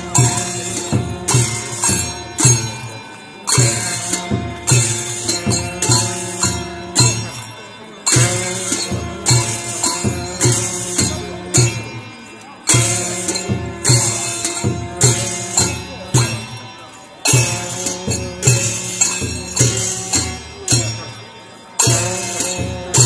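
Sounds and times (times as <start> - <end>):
clashing cymbals: 0.0 - 23.0
drum strokes: 0.0 - 23.0
held melodic tones: 0.0 - 23.0.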